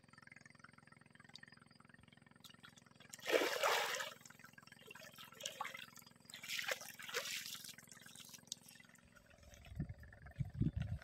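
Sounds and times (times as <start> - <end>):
water splashing: 3.1 - 9.8.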